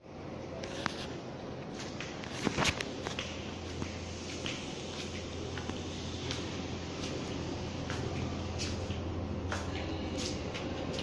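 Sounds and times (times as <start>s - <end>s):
flip-flop footsteps on tile: 1.7s - 11.0s
low hum: 2.9s - 11.0s.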